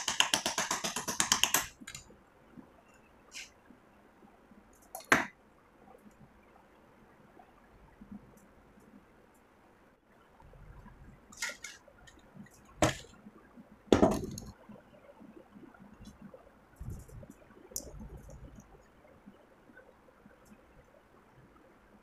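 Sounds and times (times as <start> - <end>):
tools clicking and knocking on wood: 0.0 - 2.0.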